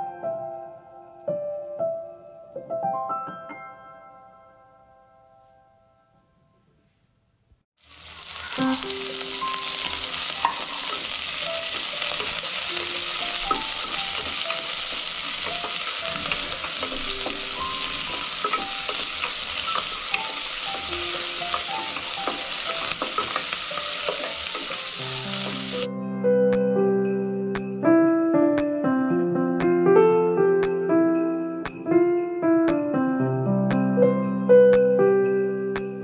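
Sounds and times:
onion sizzling in hot oil: 0:07.8 - 0:25.9
wooden spoon stirring pot: 0:09.6 - 0:25.8.

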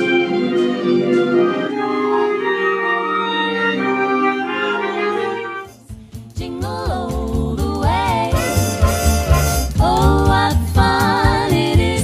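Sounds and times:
jazz band playing chords: 0:00.0 - 0:12.0
music with steady low beat: 0:05.8 - 0:12.0.

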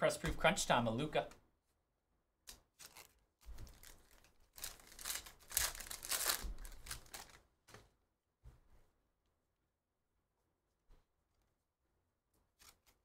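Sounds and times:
foil wrapper tearing and crinkling: 0:02.7 - 0:07.4.

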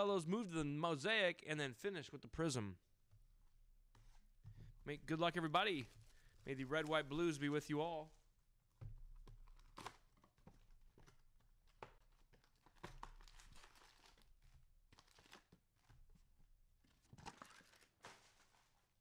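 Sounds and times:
plastic wrapping tearing and crinkling: 0:09.4 - 0:10.4, 0:12.0 - 0:15.6.

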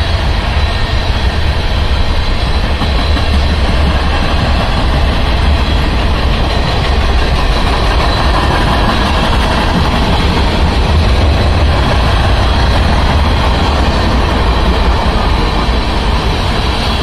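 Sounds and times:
freight train rumbling by: 0:00.0 - 0:17.0.

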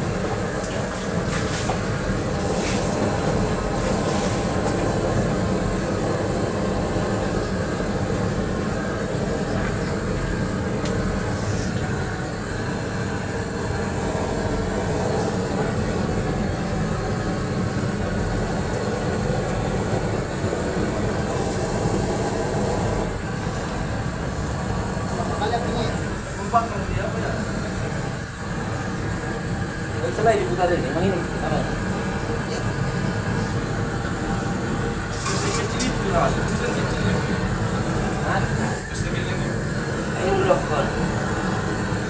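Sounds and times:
gas blowtorch burning: 0:00.0 - 0:42.0.

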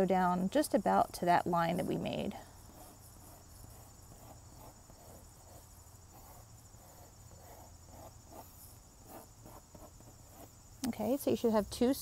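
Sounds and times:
pencil scratching on paper: 0:01.4 - 0:10.6.

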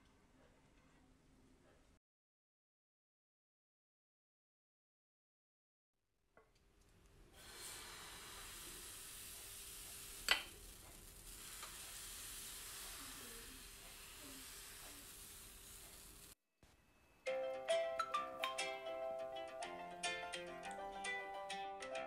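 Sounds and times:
batter sizzling on hot pan: 0:07.3 - 0:16.4.

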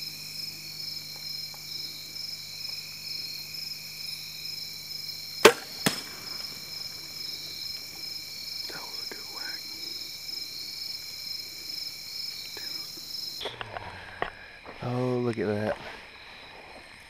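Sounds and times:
insects chorus: 0:00.0 - 0:17.0
arrow striking deer: 0:05.4 - 0:06.5
bowstring snap: 0:05.4 - 0:06.5.

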